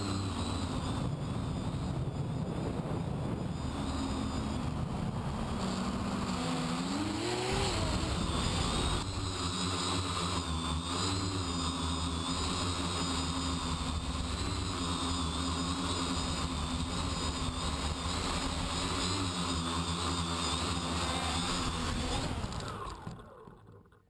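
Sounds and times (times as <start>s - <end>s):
quadcopter motors whining: 0.0s - 24.0s.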